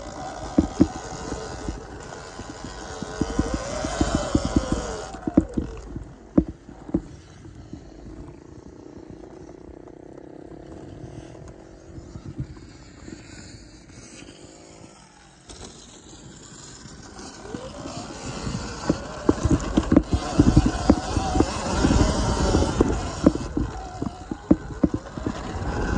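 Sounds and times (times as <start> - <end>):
electric dirt bike motor whining: 0.0 - 25.9
irregular knocks: 0.4 - 7.1, 18.8 - 25.9
rustling: 15.8 - 25.9.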